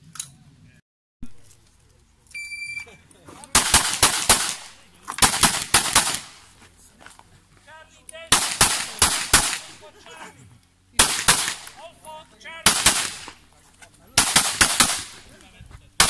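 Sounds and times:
rapid pistol shots: 0:03.5 - 0:06.5, 0:08.3 - 0:09.9, 0:11.0 - 0:11.8, 0:12.6 - 0:13.4, 0:14.2 - 0:15.3.

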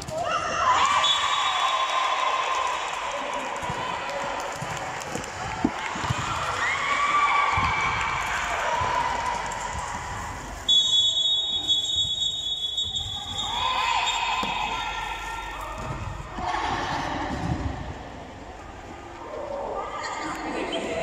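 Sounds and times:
referee's whistle: 0:00.9 - 0:02.0, 0:10.7 - 0:14.6.

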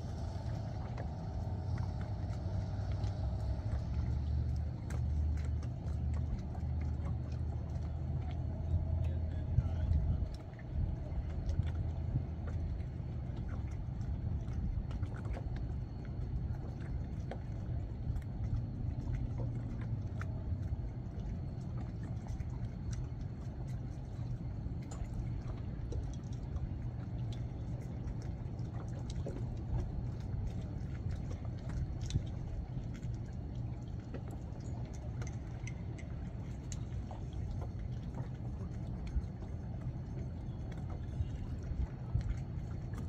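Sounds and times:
steady low rumble: 0:00.0 - 0:43.0
water lapping against hull: 0:00.0 - 0:43.0.

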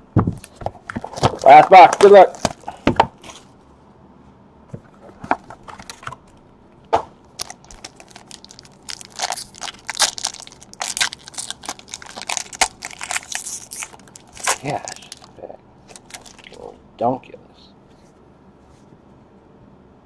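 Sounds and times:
foil wrapper crinkling: 0:01.0 - 0:03.4, 0:07.4 - 0:16.7.

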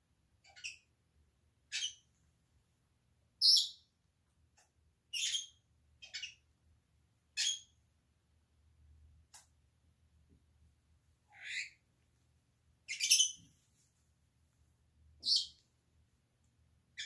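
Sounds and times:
parrots squawking: 0:11.3 - 0:11.8.

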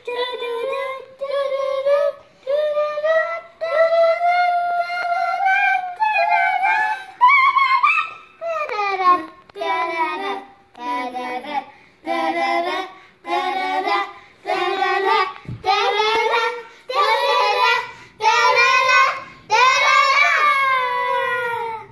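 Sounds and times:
child singing wordless tune: 0:00.0 - 0:21.9
child breathing: 0:17.8 - 0:18.2.

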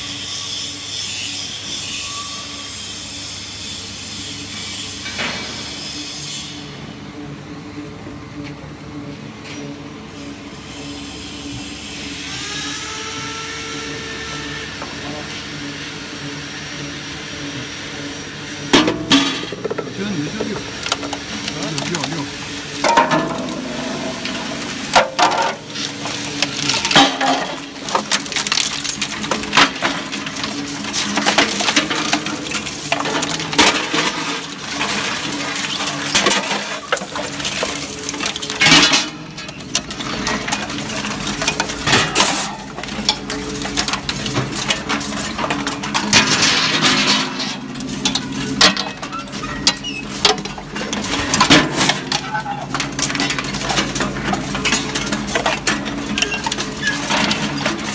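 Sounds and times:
shredder tearing sheet metal: 0:18.5 - 0:57.9.

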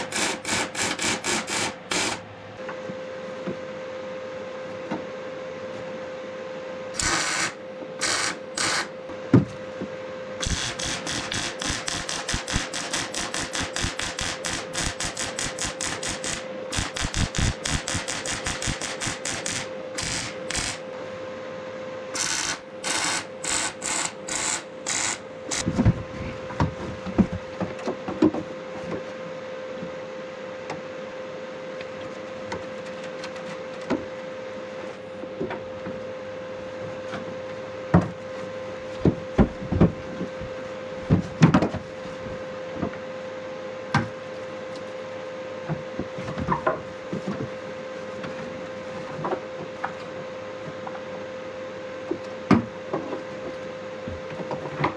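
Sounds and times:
welding arc crackling: 0:00.0 - 0:02.2, 0:07.0 - 0:08.9, 0:10.4 - 0:20.9, 0:22.2 - 0:25.7
steady hum: 0:00.0 - 0:54.9.

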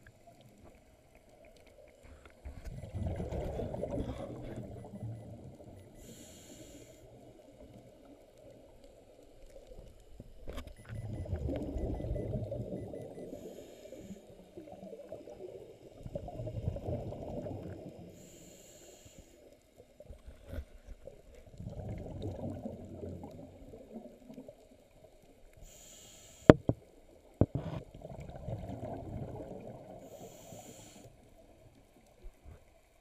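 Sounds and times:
scuba regulator breathing underwater: 0:05.8 - 0:07.2, 0:13.2 - 0:14.3, 0:18.1 - 0:19.4, 0:25.6 - 0:26.5, 0:30.0 - 0:31.2.

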